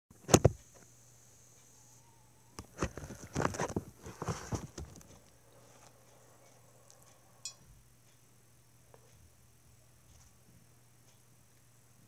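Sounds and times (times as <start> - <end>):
handling clicks and rustles: 2.6 - 7.0.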